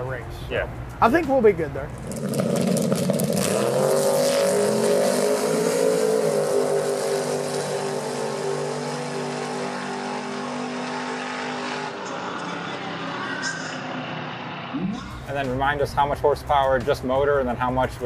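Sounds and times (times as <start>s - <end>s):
drag racing engines at full throttle: 1.9s - 15.3s.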